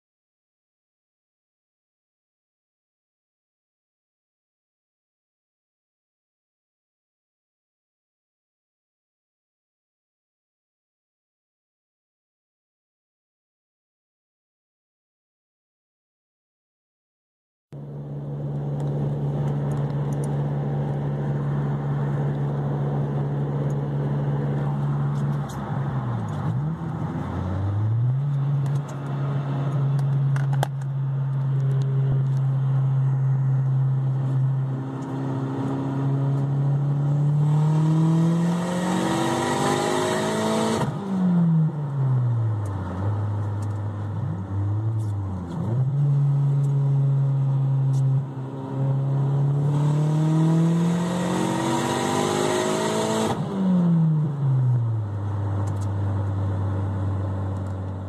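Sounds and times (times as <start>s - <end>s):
car engine revving: 17.8s - 58.0s.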